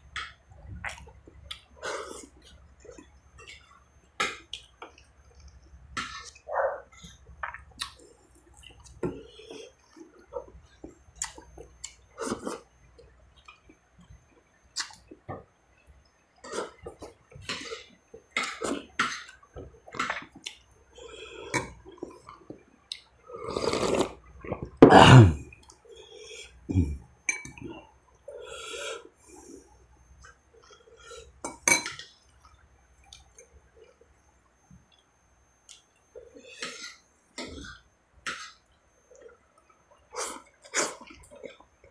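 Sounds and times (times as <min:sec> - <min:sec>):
man chewing and lip smacking: 0:00.2 - 0:09.0, 0:10.0 - 0:13.8, 0:14.7 - 0:15.4
loud slurp of broth: 0:23.4 - 0:24.2.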